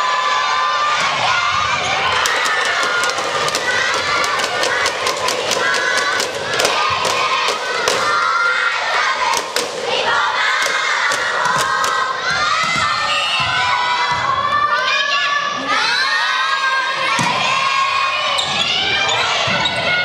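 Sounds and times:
crowd shouting cheers: 0:00.0 - 0:20.0
sharp knocks: 0:02.2 - 0:08.4, 0:09.2 - 0:12.1.

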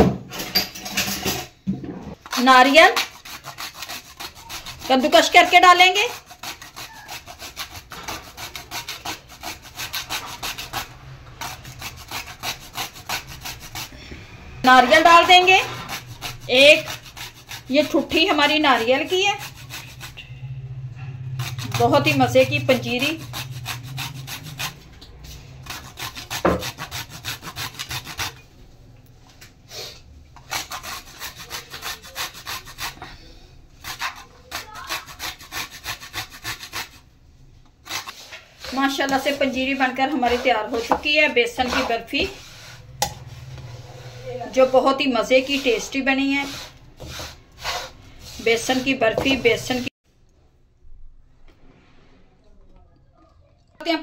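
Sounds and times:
coconut rasping on metal grater: 0:02.1 - 0:28.5, 0:30.4 - 0:33.2, 0:33.8 - 0:37.1, 0:37.8 - 0:49.9.

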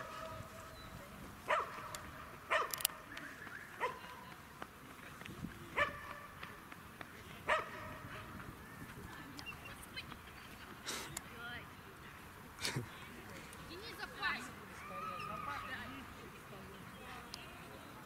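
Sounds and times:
dog barking: 0:01.5 - 0:02.8, 0:03.8 - 0:04.0, 0:05.8 - 0:06.3, 0:07.5 - 0:08.1.

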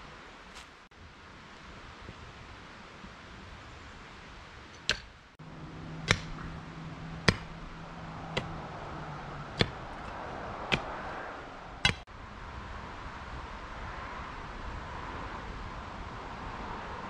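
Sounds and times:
hammer striking wooden stake: 0:04.7 - 0:05.2, 0:06.0 - 0:06.6, 0:07.2 - 0:07.6, 0:08.3 - 0:08.6, 0:09.6 - 0:11.0, 0:11.8 - 0:12.0.

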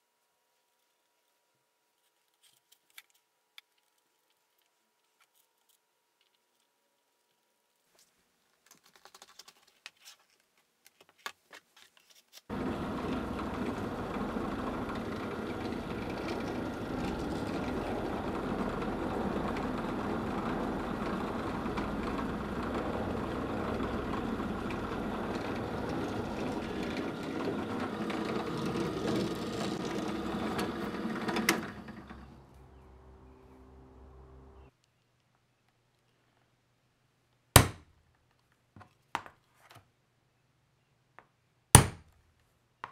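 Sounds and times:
drill press drilling leather: 0:12.5 - 0:32.7.

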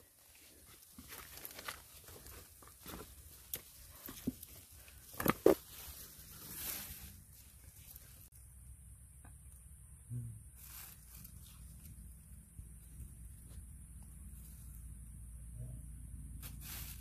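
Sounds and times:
twigs and leaves rustling snapping: 0:00.6 - 0:07.0.

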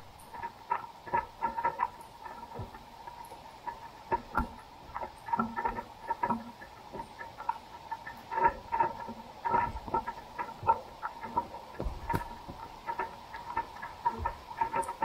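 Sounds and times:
floodwater and rain hiss: 0:00.0 - 0:15.0
soft low thumps: 0:09.6 - 0:15.0.

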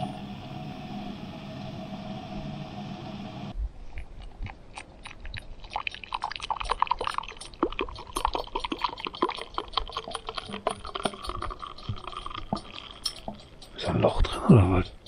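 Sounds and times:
coffee pouring into a mug: 0:05.6 - 0:13.4.

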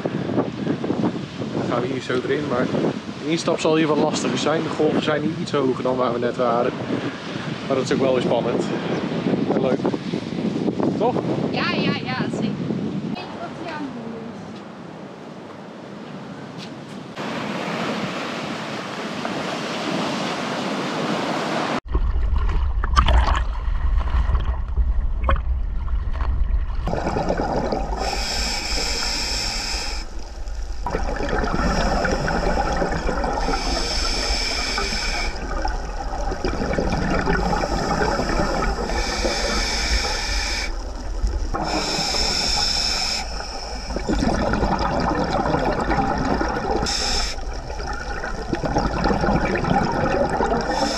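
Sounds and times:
gurgling exhaust bubbles: 0:21.8 - 0:50.9
low underwater rumble: 0:21.9 - 0:50.9
diver breathing through regulator: 0:26.9 - 0:50.9.

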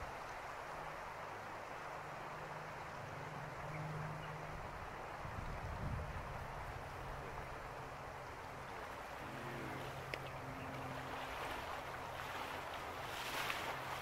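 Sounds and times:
river water rushing: 0:00.0 - 0:14.0
splashing of person wading: 0:09.2 - 0:14.0.

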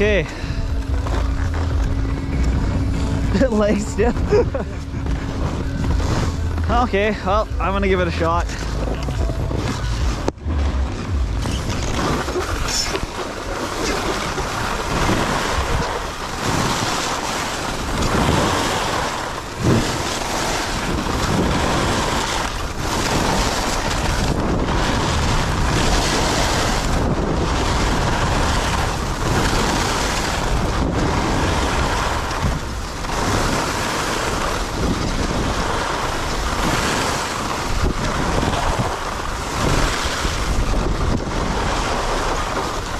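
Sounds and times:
skis scraping over snow: 0:00.0 - 0:42.9
wind rushing over microphone: 0:00.0 - 0:42.9.

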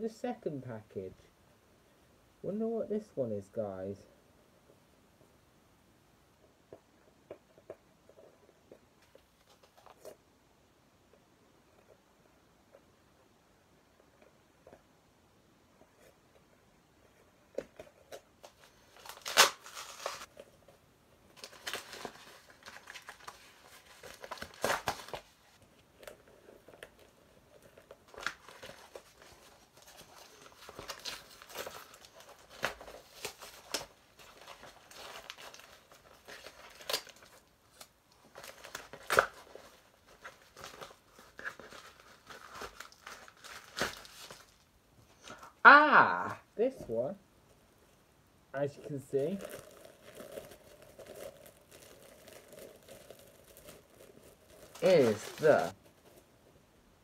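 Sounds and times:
paper packaging tearing and crumpling: 0:18.1 - 0:20.4, 0:21.4 - 0:26.2, 0:26.8 - 0:44.6, 0:48.6 - 0:56.2.

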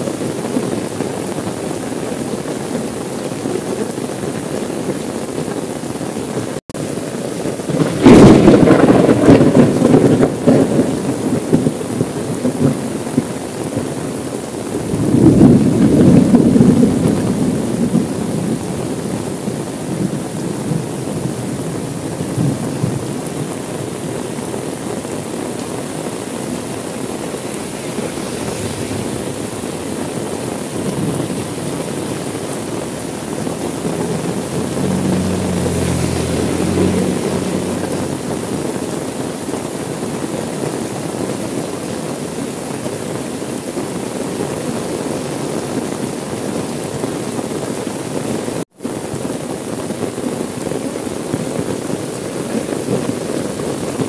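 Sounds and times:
rain on car window: 0:00.0 - 0:54.0
thunder rumble: 0:07.3 - 0:39.8.

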